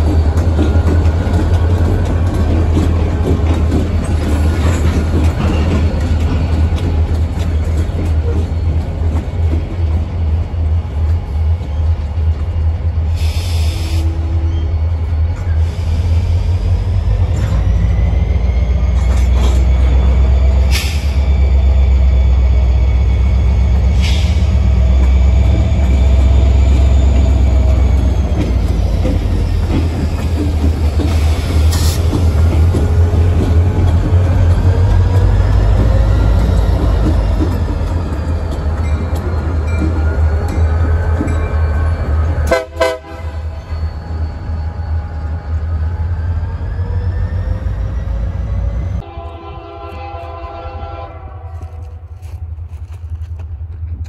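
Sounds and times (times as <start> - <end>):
freight train rumbling on rails: 0.0 - 54.0
wheel squeal: 43.3 - 48.9.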